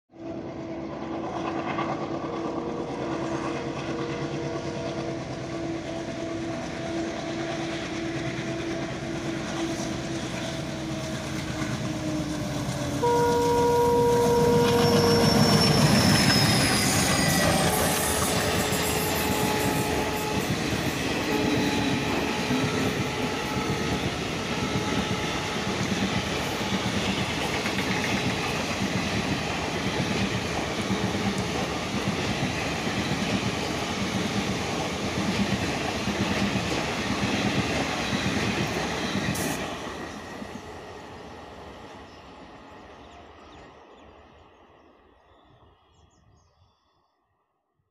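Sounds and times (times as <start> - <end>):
diesel locomotives chugging: 0.3 - 44.6
train wheels clickety-clack: 0.9 - 13.1, 14.3 - 40.8
train horn: 2.6 - 27.6.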